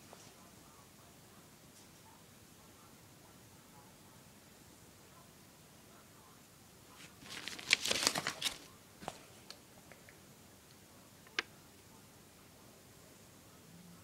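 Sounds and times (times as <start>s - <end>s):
paper pages rustling: 7.0s - 9.3s.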